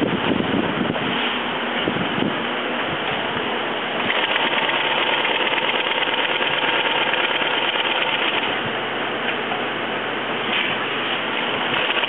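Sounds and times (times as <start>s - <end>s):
sewing machine stitching: 4.0s - 8.6s, 11.7s - 12.0s.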